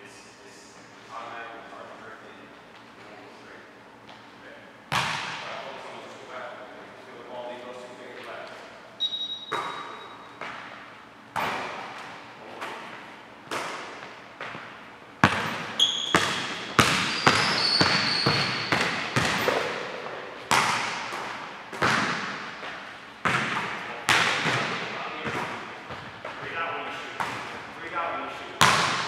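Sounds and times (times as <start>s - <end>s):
sneaker squeaks: 9.0s - 21.2s.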